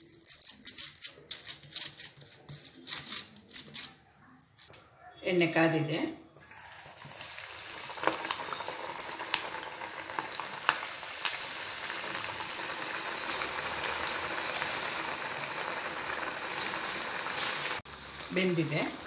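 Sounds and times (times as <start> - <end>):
dough sizzling in hot oil: 6.4 - 19.0.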